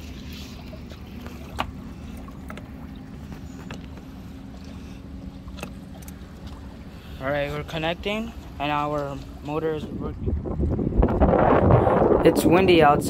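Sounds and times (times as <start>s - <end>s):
wind on microphone: 8.8s - 13.0s.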